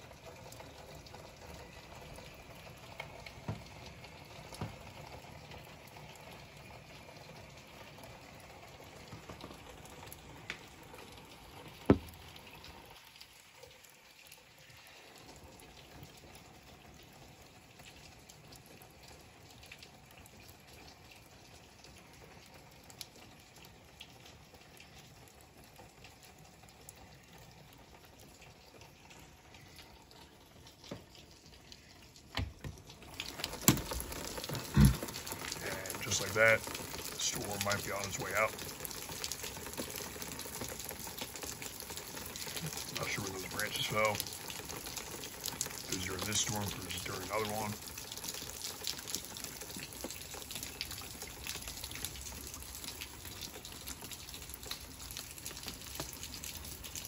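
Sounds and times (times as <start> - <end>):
running water: 0.0 - 57.0
steady rain: 0.0 - 57.0
drops ticking on glass: 11.7 - 12.6.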